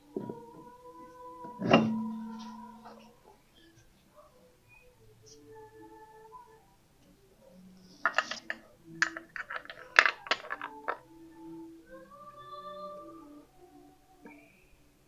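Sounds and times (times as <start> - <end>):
metal clicks and clinks: 8.0 - 11.0.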